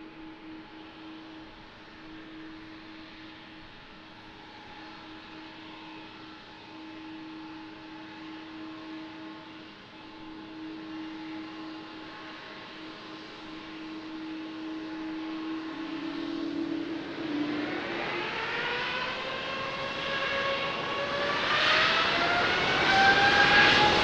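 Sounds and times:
jet engines whining: 12.9 - 24.0.

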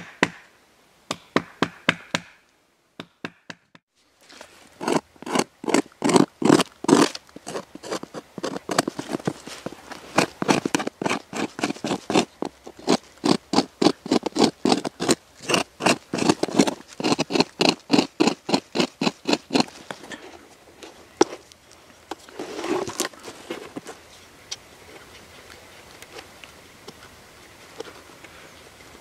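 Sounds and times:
bark slab scraping rustle: 4.2 - 28.7
tool scratching tree bark: 4.8 - 20.2.

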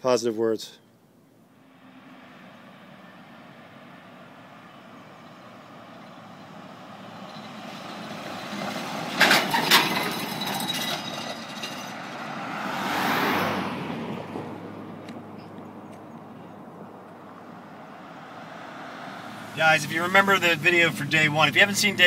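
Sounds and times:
pickup truck towing trailer passing: 1.2 - 22.0
car passing close by: 1.4 - 21.5
sharp clatters from trailer: 8.5 - 12.1.

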